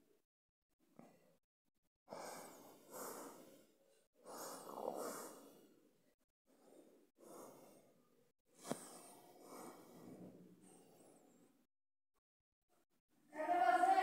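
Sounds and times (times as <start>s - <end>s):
person breathing softly: 2.1s - 11.7s.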